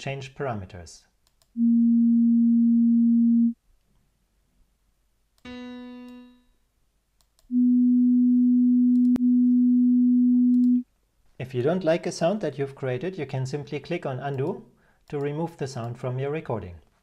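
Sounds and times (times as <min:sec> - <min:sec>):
pure sine tone: 0:01.6 - 0:03.6, 0:07.5 - 0:10.8.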